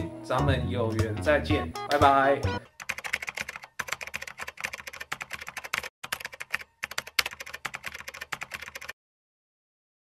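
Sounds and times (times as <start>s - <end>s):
keyboard typing clicks: 2.8s - 9.0s.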